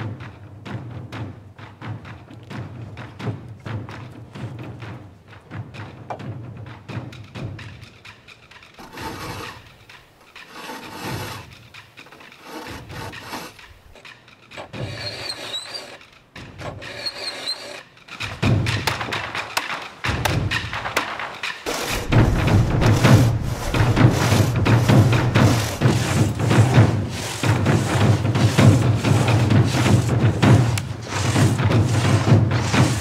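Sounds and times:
drumming music: 0.0s - 10.6s, 17.9s - 33.0s.

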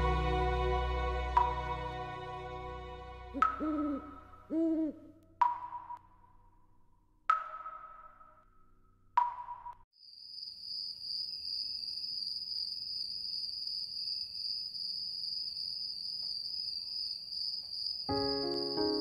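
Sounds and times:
soft sustained music chord: 0.0s - 4.5s, 18.1s - 19.0s
crickets trilling: 10.0s - 19.0s.

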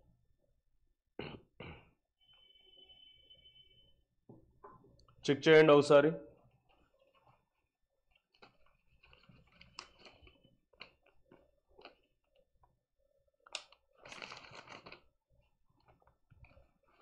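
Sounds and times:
rustling: 6.4s - 10.5s.

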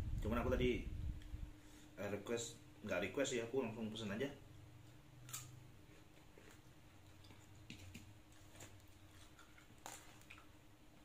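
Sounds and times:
low steady hum: 0.0s - 11.0s
man chewing with mouth clicks: 5.2s - 11.0s.

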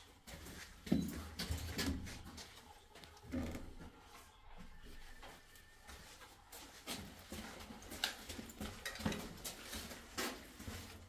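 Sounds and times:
footsteps scuffing on concrete: 0.0s - 11.0s.

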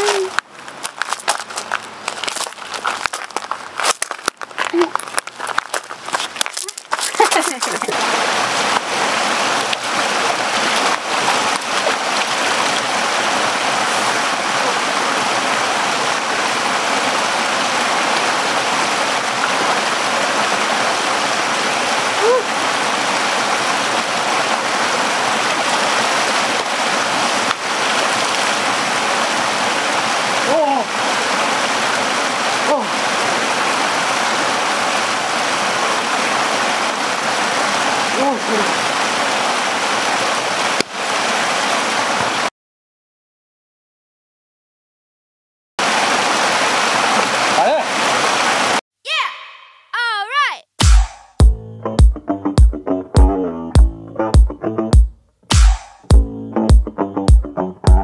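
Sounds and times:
stream rushing: 0.0s - 42.5s, 45.8s - 48.8s.

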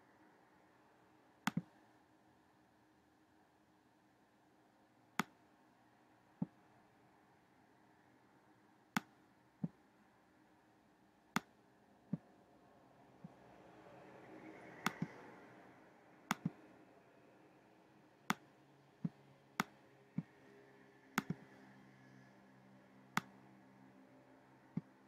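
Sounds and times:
faint room hum: 0.0s - 25.0s
computer mouse clicks: 1.5s - 1.8s, 14.7s - 15.3s, 16.3s - 16.7s, 18.3s - 20.4s, 21.2s - 21.6s, 23.1s - 23.4s.

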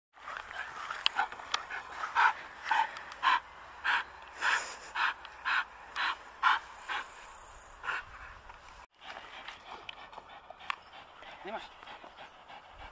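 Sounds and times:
dog panting hard: 0.5s - 7.1s, 9.0s - 12.9s.

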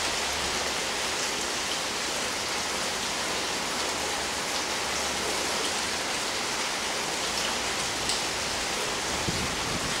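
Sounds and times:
steady rain hiss: 0.0s - 10.0s.

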